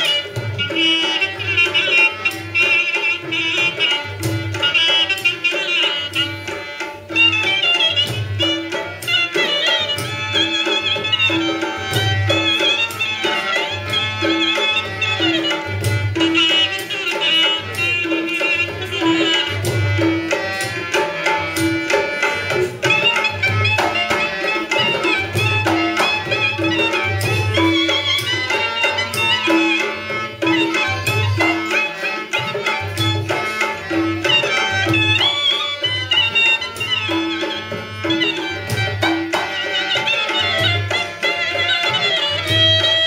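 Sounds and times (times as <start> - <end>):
sliding ornamented melody: 0.0 - 43.0
hand drum beat: 7.2 - 35.6, 36.2 - 41.1.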